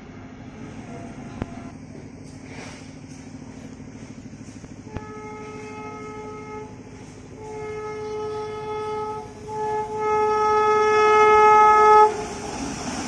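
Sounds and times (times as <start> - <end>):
locomotive horn blasts: 4.8 - 12.3.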